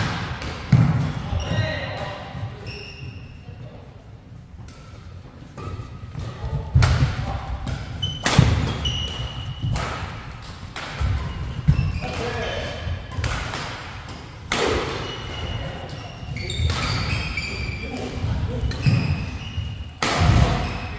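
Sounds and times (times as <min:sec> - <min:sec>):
racket hitting shuttlecock: 0:00.0 - 0:01.2, 0:04.6 - 0:20.9
shoes squeaking on court floor: 0:01.2 - 0:03.7, 0:07.4 - 0:09.8, 0:11.0 - 0:13.3, 0:14.3 - 0:20.9.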